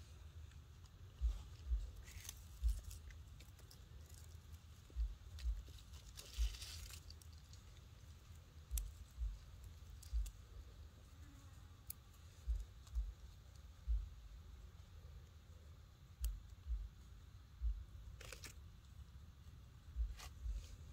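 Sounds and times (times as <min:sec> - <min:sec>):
monkey gnawing a branch: 0:00.5 - 0:10.5, 0:18.1 - 0:18.6
dull low thumps: 0:01.2 - 0:03.0, 0:04.9 - 0:05.7, 0:08.7 - 0:10.7, 0:12.4 - 0:13.2, 0:13.8 - 0:14.4, 0:16.2 - 0:17.0, 0:17.6 - 0:18.1, 0:19.9 - 0:20.9
dry leaves rustling: 0:01.6 - 0:10.3.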